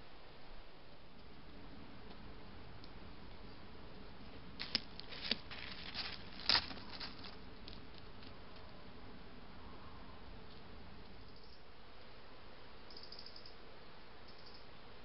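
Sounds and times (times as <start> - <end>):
animal crackling through dry leaves: 4.6 - 8.3.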